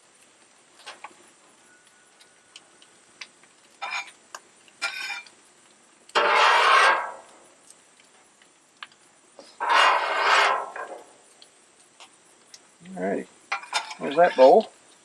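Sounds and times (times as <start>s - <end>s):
metal spatula scraping griddle: 3.8s - 4.2s, 4.8s - 5.3s, 6.1s - 7.4s, 9.4s - 11.2s, 13.5s - 14.6s.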